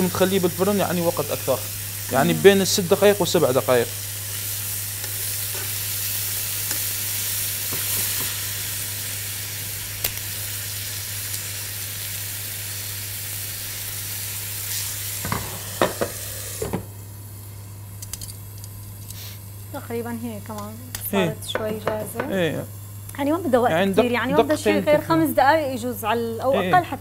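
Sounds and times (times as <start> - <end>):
chicken sizzling in a frying pan: 0.0 - 26.1
metal knocking on pan: 21.5 - 22.4.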